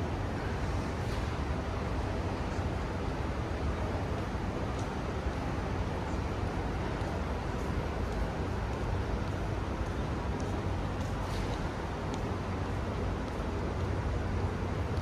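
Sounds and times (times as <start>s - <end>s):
road traffic rumble: 0.0s - 15.0s
faint ticks: 7.0s - 14.0s.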